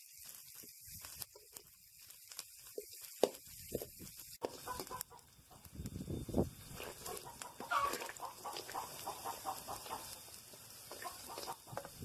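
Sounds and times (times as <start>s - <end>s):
chickens clucking: 4.4s - 5.7s, 6.8s - 12.0s
ladle scraping metal pan: 6.7s - 8.8s.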